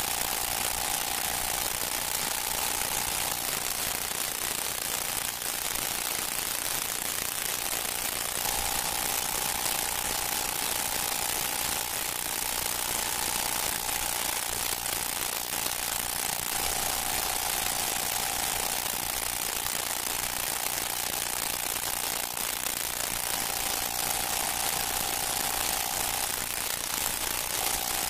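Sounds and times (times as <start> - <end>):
recording hiss: 0.0 - 28.0
thin steady tone: 0.0 - 28.0.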